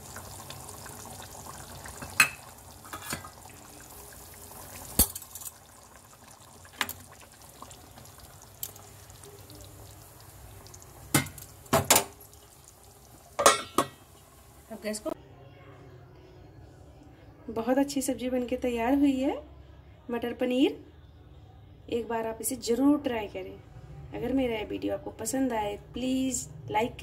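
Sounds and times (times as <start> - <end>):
gravy simmering with bubbling hiss: 0.0 - 15.2
metal spoon clinking against pan: 13.4 - 14.0.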